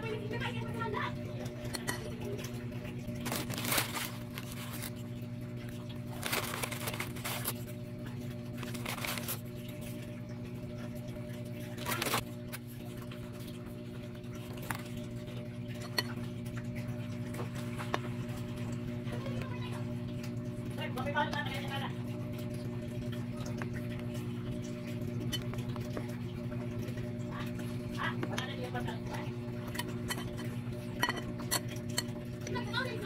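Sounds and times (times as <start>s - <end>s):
steady low hum: 0.0s - 33.0s
food rustles and squishes: 3.1s - 10.2s, 11.3s - 13.4s, 14.3s - 15.2s.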